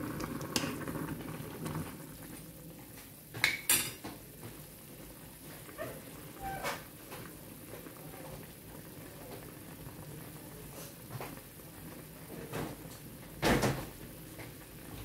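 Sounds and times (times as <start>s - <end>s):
broth bubbling: 0.0s - 2.8s.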